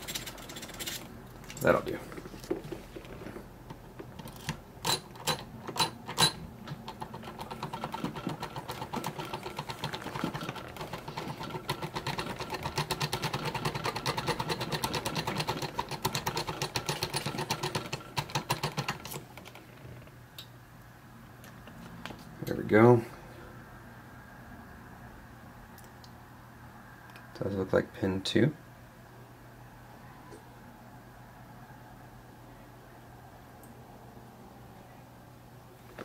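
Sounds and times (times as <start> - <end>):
fast clicking rattle: 6.9 - 19.2.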